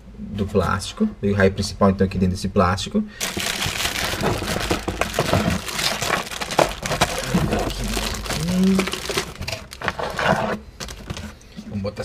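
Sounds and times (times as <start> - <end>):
plastic bag crinkling: 3.2 - 11.4.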